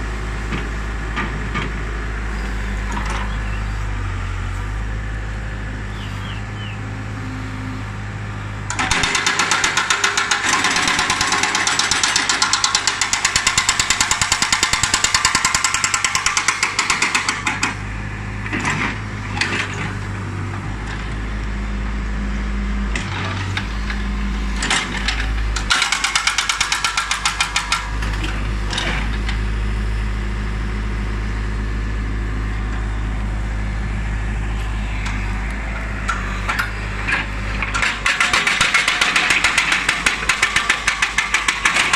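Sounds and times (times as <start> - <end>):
diesel engine running: 0.0 - 41.9
hydraulic rock breaker hammering: 8.7 - 17.8, 24.6 - 29.1, 36.1 - 41.9.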